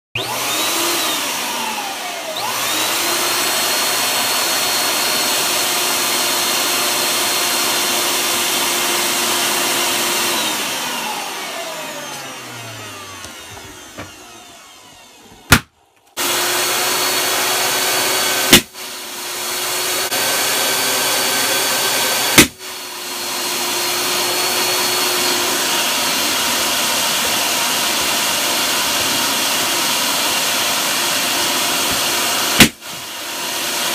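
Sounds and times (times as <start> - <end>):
balloon inflator whining: 0.1 - 33.9
balloons bursting with loud bangs: 18.5 - 18.8, 22.3 - 22.6, 32.6 - 32.8.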